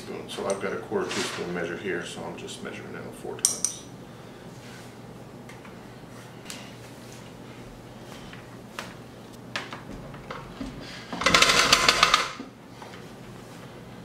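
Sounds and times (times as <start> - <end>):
mixer rattling and scraping: 0.9 - 1.7, 10.4 - 12.5.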